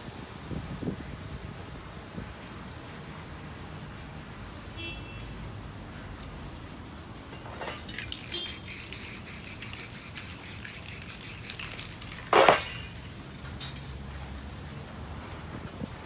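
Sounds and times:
spray can hissing: 7.9 - 13.0.

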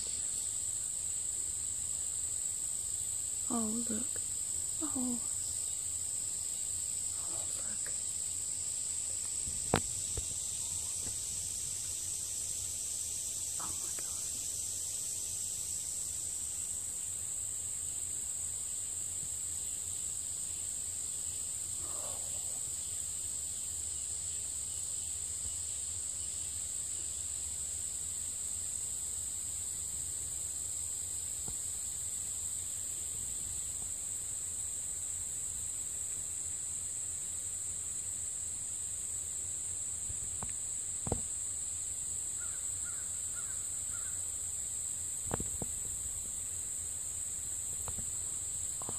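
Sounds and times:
faint chirps: 0.0 - 1.0, 3.4 - 16.8, 20.0 - 25.5
insects droning: 0.0 - 48.9.

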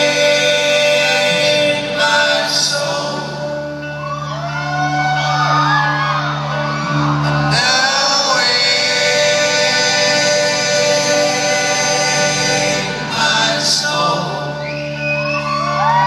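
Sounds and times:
folk-rock band playing: 0.0 - 16.0
audience whooping and shouting: 3.8 - 8.8, 14.5 - 16.0.

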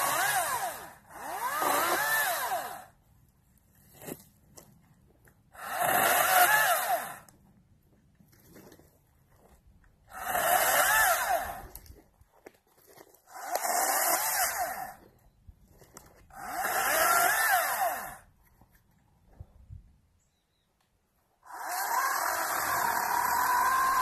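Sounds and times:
battery chainsaw cutting wood: 0.0 - 3.0, 5.5 - 7.3, 10.1 - 11.9, 13.2 - 15.1, 16.2 - 18.3, 21.4 - 24.0.

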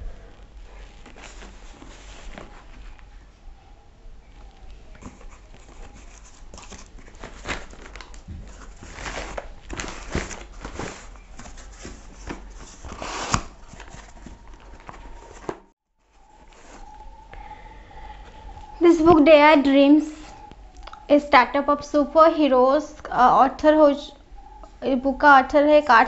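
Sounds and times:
cardboard box being torn open: 12.3 - 14.1.

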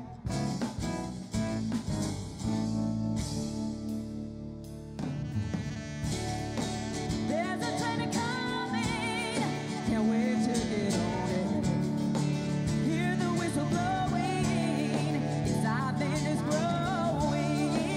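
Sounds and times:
drums: 0.0 - 17.9
electric guitar: 0.0 - 17.9
woman singing lead: 6.0 - 17.9.

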